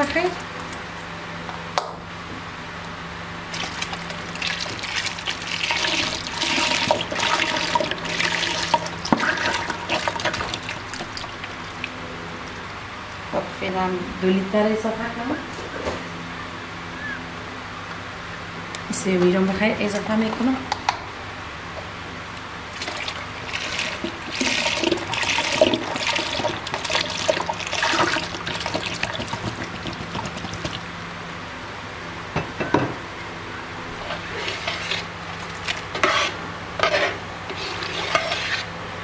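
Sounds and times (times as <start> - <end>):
milk pouring and splashing: 3.5 - 12.0, 22.7 - 30.8.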